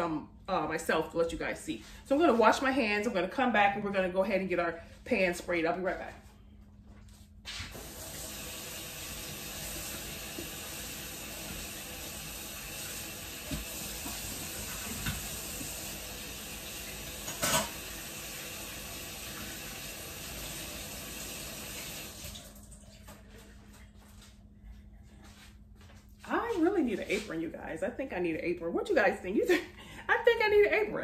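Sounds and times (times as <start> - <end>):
faucet water running: 7.7 - 23.7.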